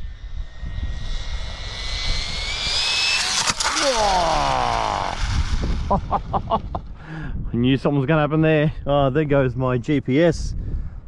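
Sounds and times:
electric motor whine: 0.0s - 6.4s.

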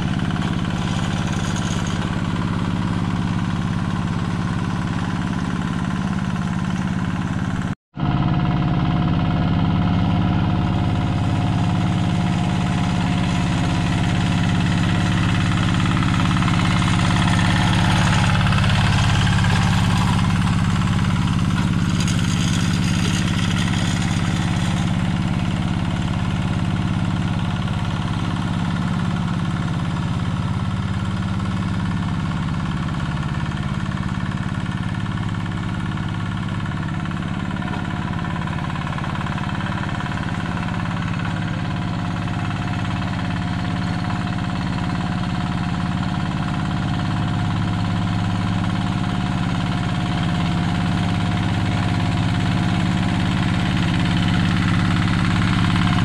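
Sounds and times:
diesel engine running: 0.0s - 56.0s
mud churning and splashing: 12.0s - 26.8s.

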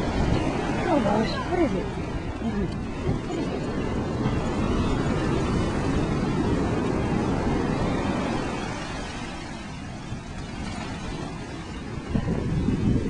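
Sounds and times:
surf rushing: 0.0s - 13.0s
wind on microphone: 0.0s - 13.0s.

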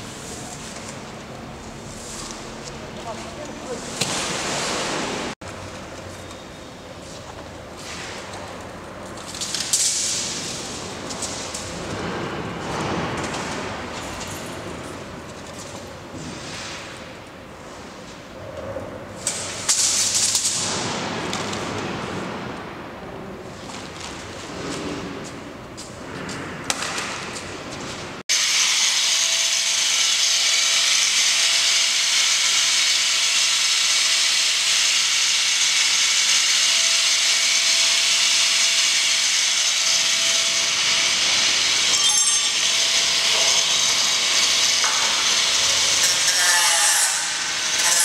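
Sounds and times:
quiet workshop noise: 0.0s - 48.0s
power tool cutting: 28.3s - 48.0s.

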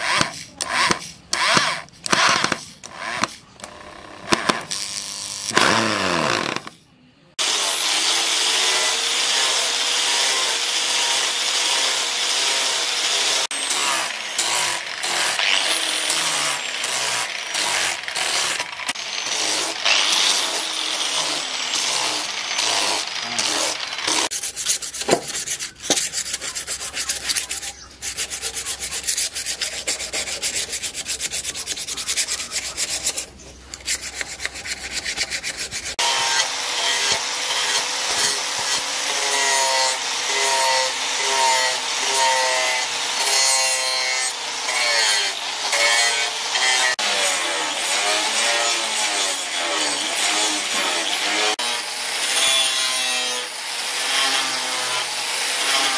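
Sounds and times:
angle grinder sanding wood: 0.0s - 6.7s, 7.4s - 55.9s
angle grinder grinding steel: 0.0s - 6.8s, 7.4s - 55.9s
hand sanding rubbing strokes: 19.2s - 36.0s.

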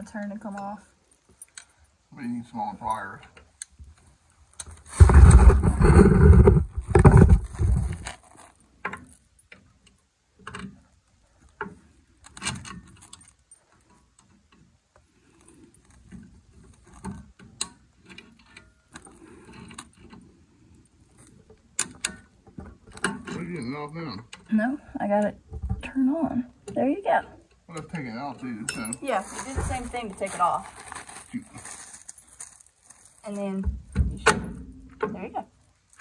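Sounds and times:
small metallic clicks and taps: 8.8s - 10.8s, 21.2s - 23.4s.

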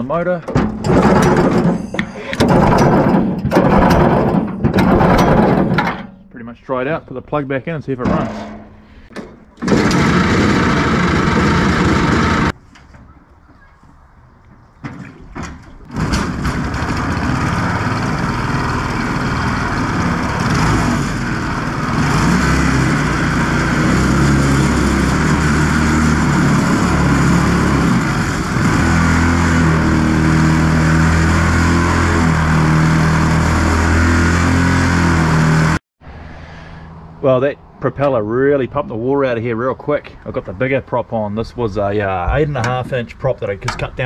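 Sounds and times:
small engine running: 9.6s - 12.6s, 15.9s - 35.8s
propeller churning water: 14.9s - 35.1s.

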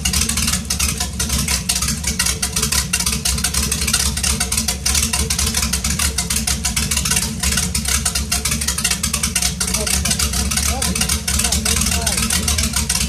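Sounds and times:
boat engine idling: 0.0s - 13.0s.

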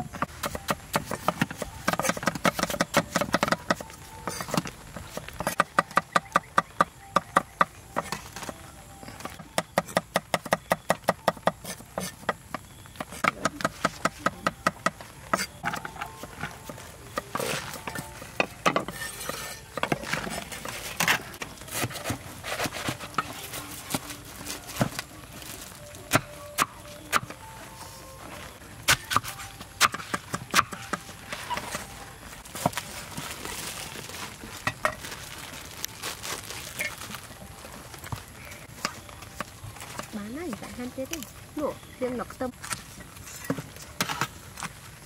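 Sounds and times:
kitchen utensils clicking and clinking: 13.3s - 24.2s.

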